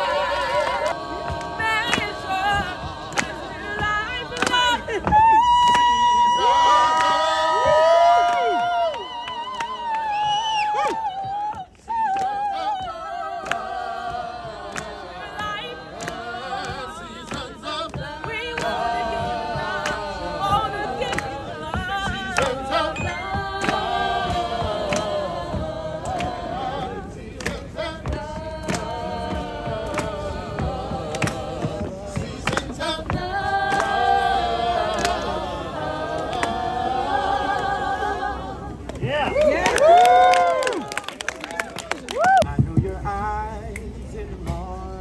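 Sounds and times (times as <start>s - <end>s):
gospel choir singing over loudspeakers: 0.0s - 45.0s.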